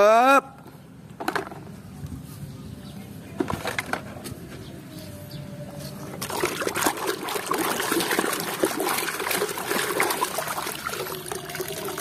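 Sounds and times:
water splashing in a tub: 6.2 - 12.0.

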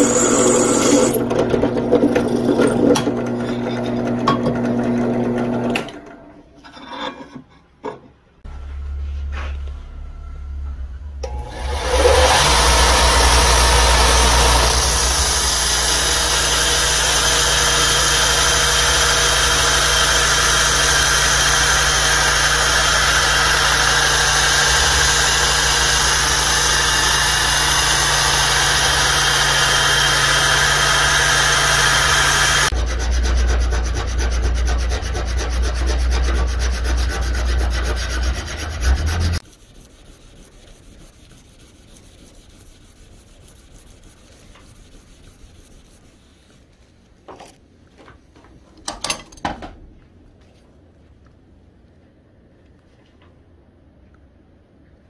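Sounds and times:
belt grinder grinding steel: 0.0 - 5.8, 11.2 - 39.4
hand file rasping on blade: 11.9 - 39.8.

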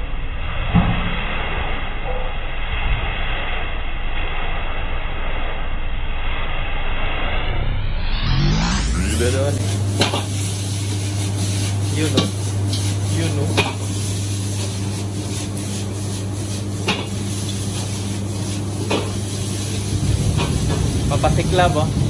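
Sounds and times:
gas burner rushing: 0.3 - 22.0
spatula scraping a wok: 9.6 - 20.8.

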